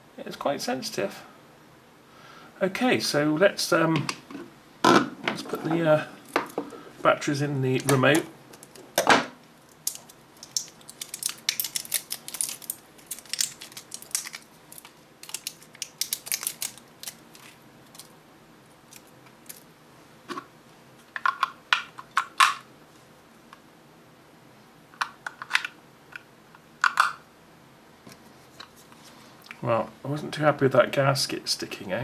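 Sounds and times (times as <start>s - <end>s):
plastic wrapping crinkling: 9.6s - 18.2s, 18.9s - 19.7s.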